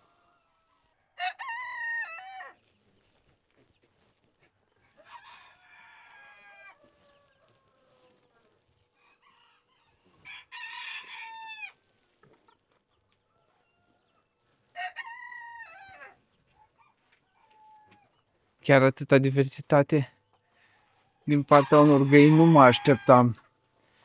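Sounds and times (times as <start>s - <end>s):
rooster crowing: 0.0s - 2.6s, 5.0s - 8.1s, 9.0s - 11.8s, 14.7s - 16.2s, 21.3s - 23.4s.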